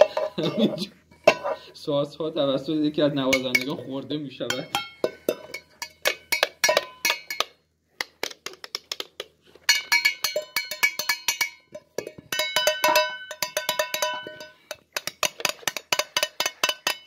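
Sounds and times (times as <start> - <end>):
metallic clinks of pots and jars: 0.0 - 1.7, 3.3 - 3.8, 4.4 - 7.6, 9.6 - 17.0.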